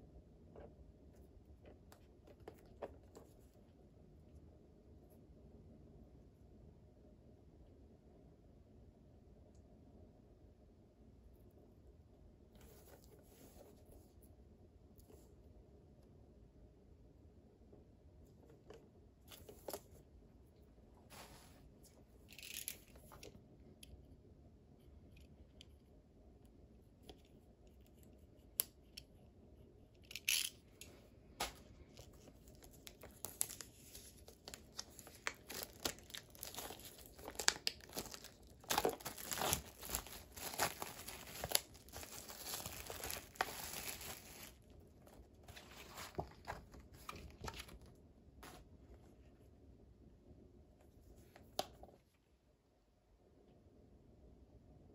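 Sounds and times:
plastic wrap crinkling and tearing: 31.4 - 47.8.

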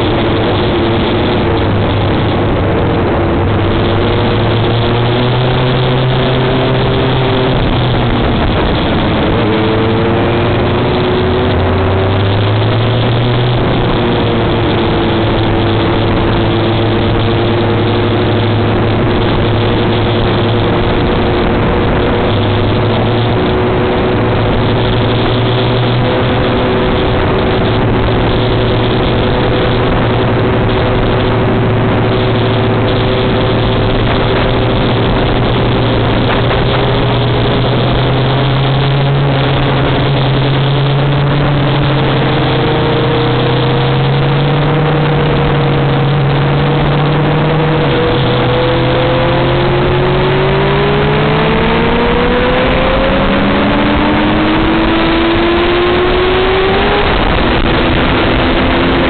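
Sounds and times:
loud wind rush: 0.0 - 59.0
motorcycle engine running: 0.0 - 59.0.

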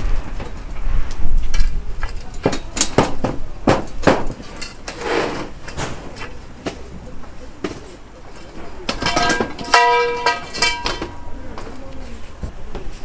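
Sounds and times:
metal tables clanking: 2.1 - 7.0, 7.6 - 11.8
metal scraping on metal: 4.4 - 6.4.

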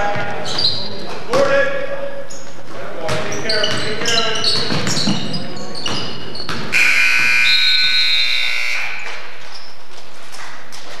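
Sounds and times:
basketball bouncing on hardwood floor: 3.0 - 6.8
scoreboard buzzer blare: 6.7 - 9.2.

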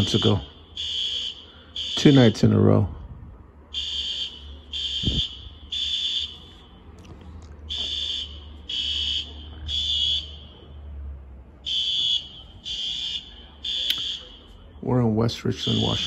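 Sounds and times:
fire alarm beeping: 0.0 - 2.6, 3.7 - 6.9, 7.7 - 11.0, 11.6 - 16.0.

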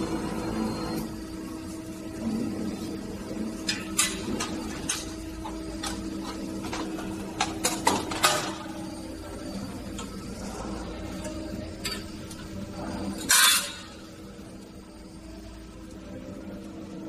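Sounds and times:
machine hum: 0.0 - 17.0
metal parts clicking and clanking: 3.6 - 8.8, 11.2 - 12.5, 13.1 - 14.0.

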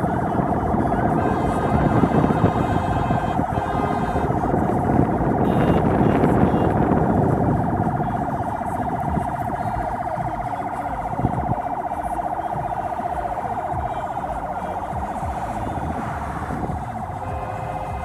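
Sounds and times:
traffic rumble: 0.0 - 18.0
siren warbling: 5.4 - 16.4.

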